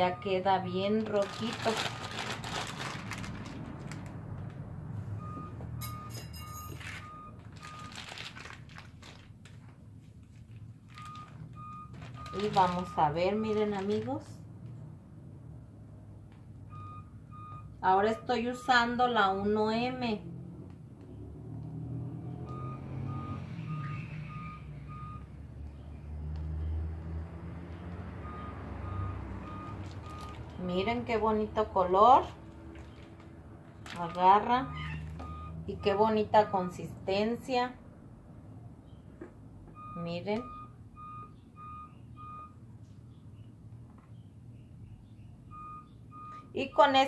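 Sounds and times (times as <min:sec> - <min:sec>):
low engine rumble: 0:00.0 - 0:18.0
plastic piping bag crinkling: 0:00.9 - 0:04.4, 0:06.8 - 0:14.3, 0:29.7 - 0:30.6, 0:33.8 - 0:34.2
reversing alarm beeping: 0:05.2 - 0:07.9, 0:16.7 - 0:18.7, 0:22.4 - 0:25.3, 0:28.2 - 0:30.4, 0:34.6 - 0:36.8, 0:39.7 - 0:42.6, 0:45.5 - 0:47.0
repeating electronic beep: 0:22.5 - 0:25.2, 0:34.7 - 0:35.6.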